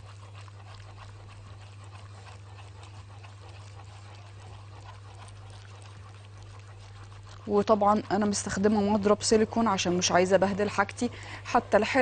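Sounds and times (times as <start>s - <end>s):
constant low hum: 0.0s - 12.0s
whisk scraping and sloshing in pot: 0.0s - 12.0s.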